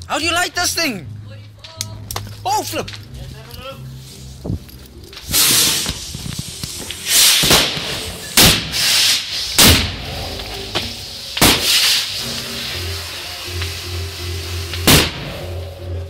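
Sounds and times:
firework bangs: 5.2 - 15.7
firework hiss: 5.2 - 16.0.

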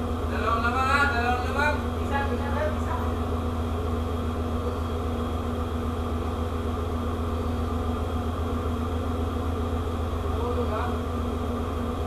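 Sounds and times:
ship machinery humming: 0.0 - 12.0.

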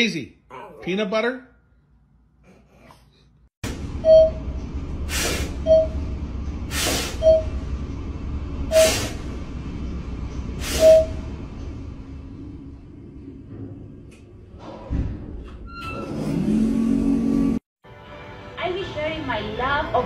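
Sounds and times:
elevator low rumble: 3.6 - 17.6.

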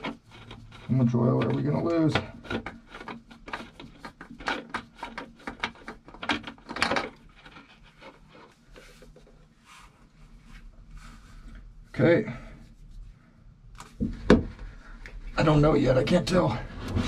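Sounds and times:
oil filter scraping and clicking: 0.0 - 9.9.

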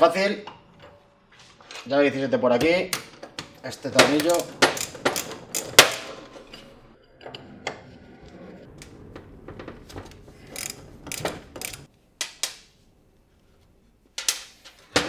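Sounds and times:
ratcheting wrench clicking: 4.2 - 5.9, 10.5 - 11.9.

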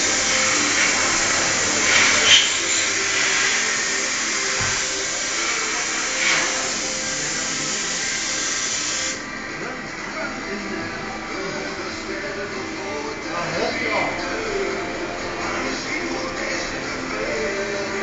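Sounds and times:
milling machine hissing: 0.0 - 9.8.

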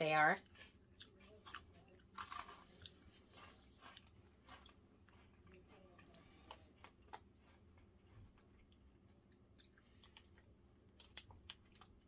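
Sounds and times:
cheese snack sticks being chewed: 0.4 - 12.0.

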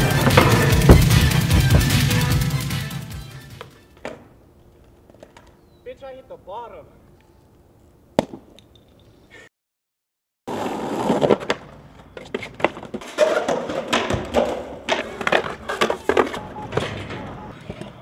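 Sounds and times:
skateboard wheels rolling: 0.0 - 1.8, 10.5 - 18.0
skateboard clacks and slaps: 0.0 - 2.0, 11.1 - 18.0.

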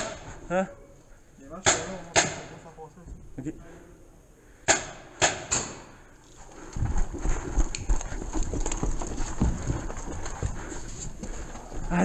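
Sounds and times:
heavy footsteps on stairs: 6.8 - 12.0.

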